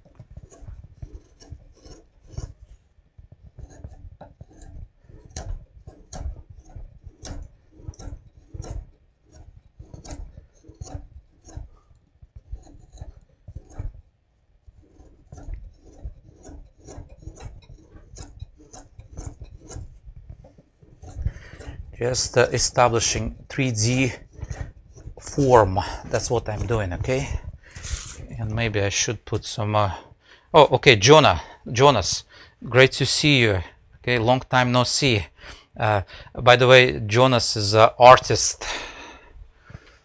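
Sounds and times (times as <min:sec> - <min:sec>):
gouge slicing and scraping wood: 0:00.0 - 0:30.1.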